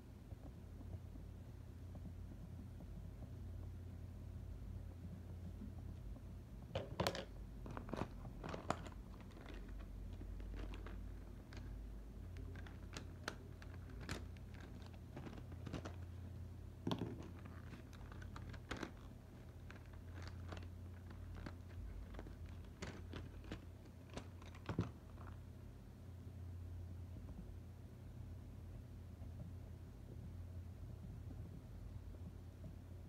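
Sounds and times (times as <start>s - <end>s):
low steady hum: 0.0s - 33.0s
colored pencils clicking and tapping: 6.8s - 16.2s, 16.8s - 25.4s.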